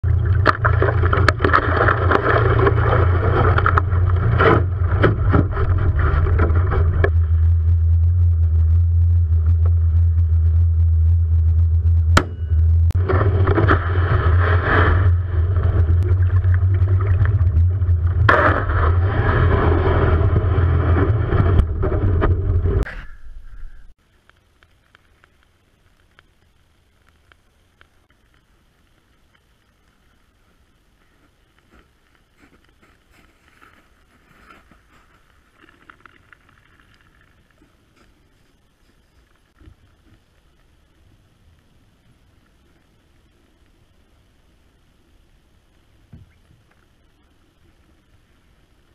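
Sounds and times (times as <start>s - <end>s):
boat motor humming: 0.0s - 22.9s
rushing noise: 0.0s - 23.5s.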